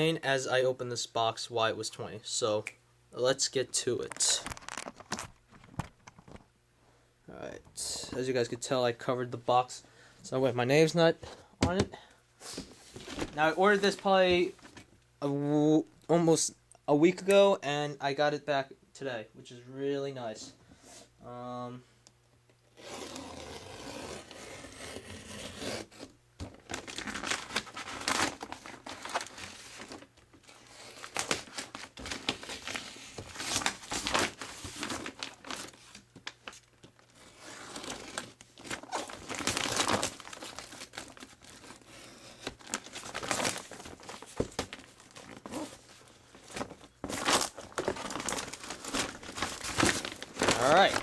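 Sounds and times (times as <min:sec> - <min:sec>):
paper and tape tearing: 0:22.8 - 0:26.0.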